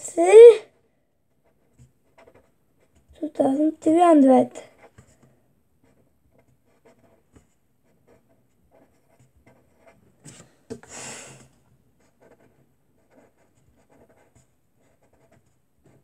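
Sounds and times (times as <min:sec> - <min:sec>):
pen scratching on paper: 0:01.3 - 0:03.2, 0:04.7 - 0:10.6, 0:12.0 - 0:16.0.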